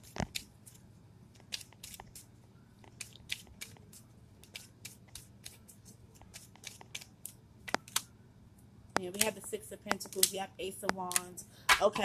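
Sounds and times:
clicks and snaps of cards: 2.8s - 8.1s, 9.0s - 11.8s.

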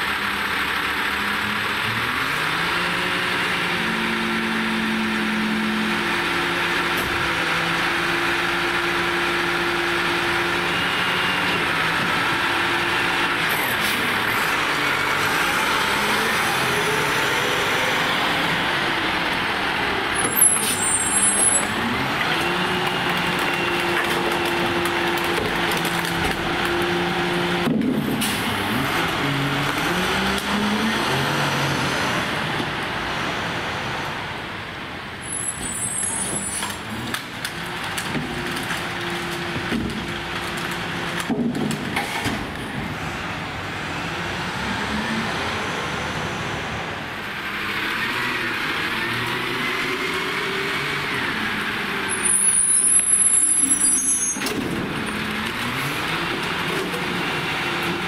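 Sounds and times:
truck engine running: 0.0s - 29.4s
brakes squealing: 0.0s - 32.3s, 35.2s - 58.0s.

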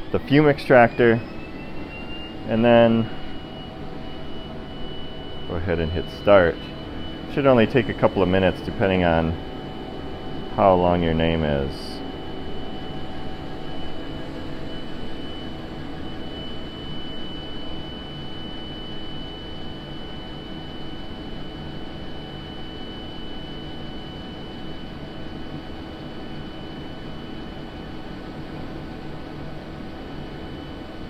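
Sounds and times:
faint high tone: 0.0s - 9.5s
fan hum and hiss: 0.0s - 17.0s.

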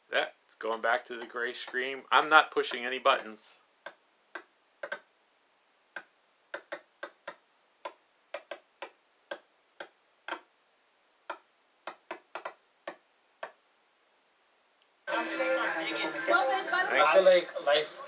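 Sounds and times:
glitching audio clicks: 0.5s - 5.1s, 5.9s - 10.5s, 11.3s - 13.6s.

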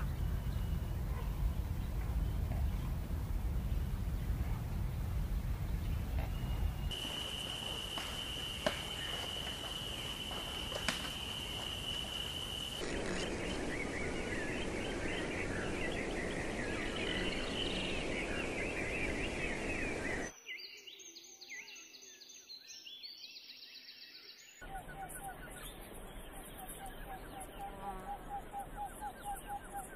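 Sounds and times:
whistled bird notes: 6.3s - 29.9s
rushing noise: 6.9s - 20.3s
insect high tone: 6.9s - 21.3s.

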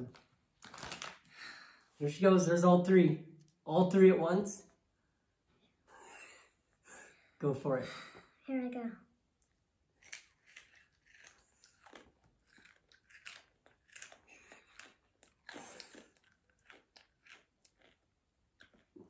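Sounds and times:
child chewing crunchy chips: 9.9s - 19.0s.

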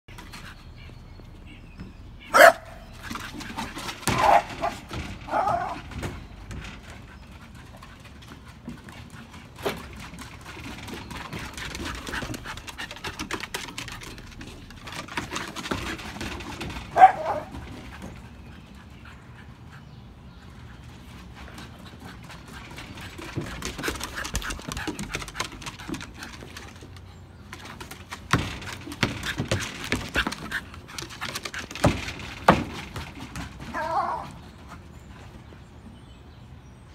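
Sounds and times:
paws and ball on wooden deck: 0.1s - 36.8s
dog barking: 2.3s - 2.8s, 17.0s - 17.5s.

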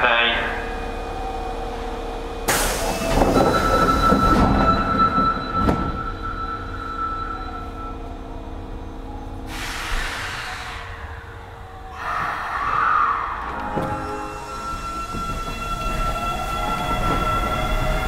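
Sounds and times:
air brake hiss: 9.5s - 11.1s.

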